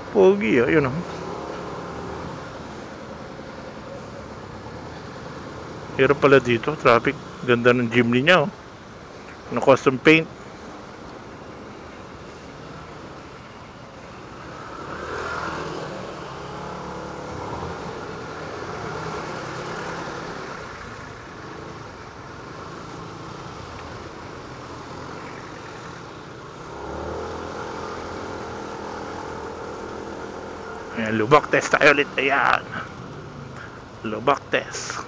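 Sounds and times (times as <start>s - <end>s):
road and traffic noise: 0.0s - 35.0s
scooter engine running: 22.4s - 31.2s.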